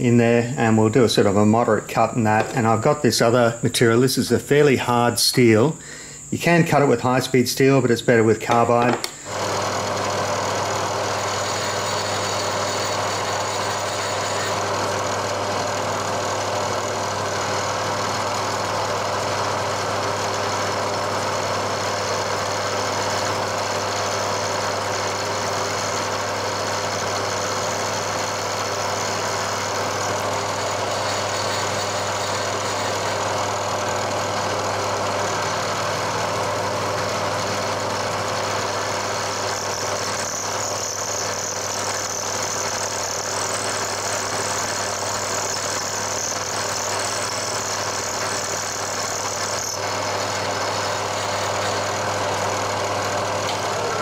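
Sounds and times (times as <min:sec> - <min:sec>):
milling machine spindle humming: 0:00.0 - 0:54.0.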